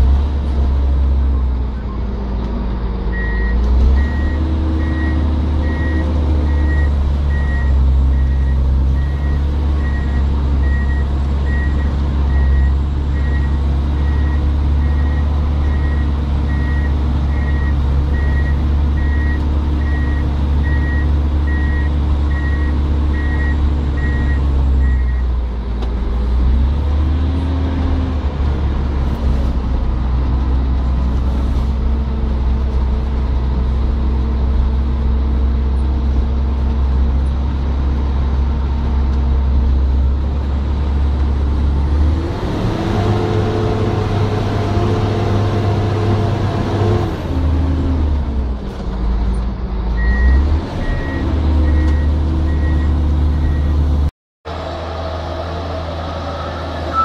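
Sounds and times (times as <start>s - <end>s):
diesel engine revving: 0.0s - 57.0s
reversing alarm beeping: 56.4s - 57.0s.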